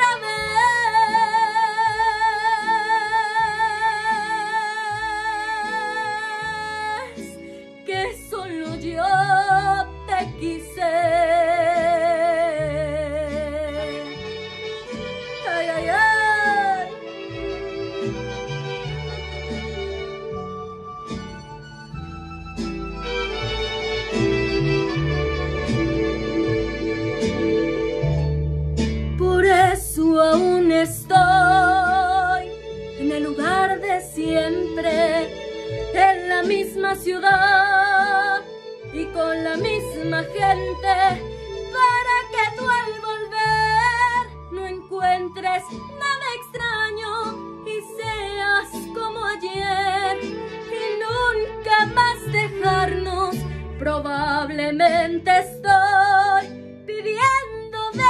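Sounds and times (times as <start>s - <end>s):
woman singing: 0.0s - 14.4s, 15.3s - 17.1s, 29.1s - 58.0s
instrumental backing with bass: 0.0s - 58.0s.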